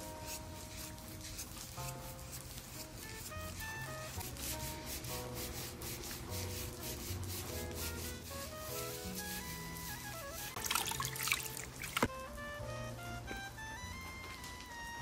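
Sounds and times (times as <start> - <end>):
hands scrubbing wet hair: 0.0 - 12.1
background music: 0.0 - 15.0.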